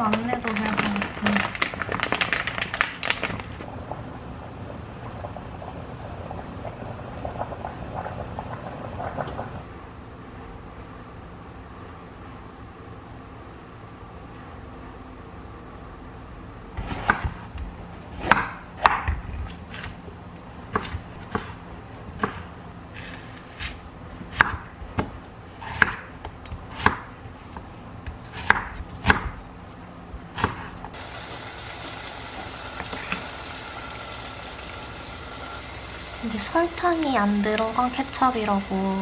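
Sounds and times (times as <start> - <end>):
knife chopping on cutting board: 16.8 - 17.4, 18.2 - 19.8, 20.7 - 27.1, 28.1 - 29.4, 30.3 - 30.8.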